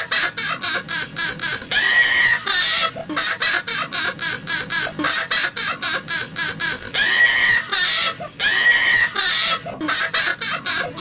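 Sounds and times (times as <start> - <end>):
woman's cackling laugh: 0.0 - 8.2.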